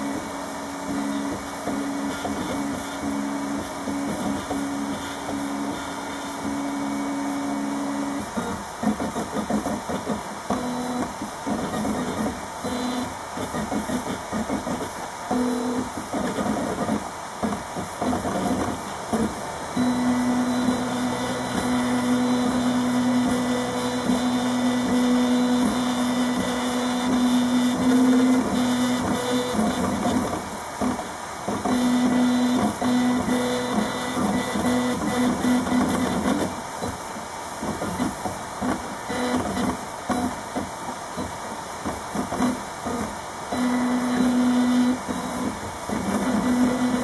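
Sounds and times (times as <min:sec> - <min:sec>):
printer stepper motors whining: 0:00.0 - 0:47.0.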